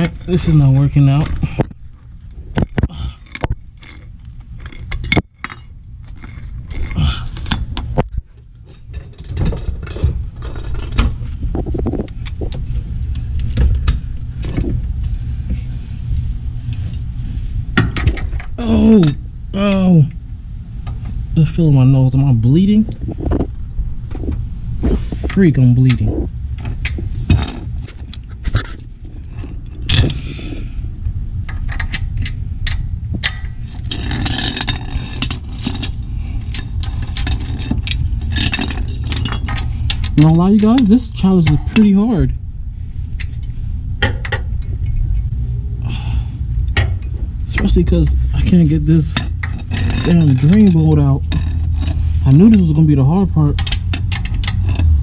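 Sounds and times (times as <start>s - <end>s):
steady low rumble: 0.0s - 55.0s
metal tools clinking: 33.2s - 42.3s, 46.8s - 55.0s.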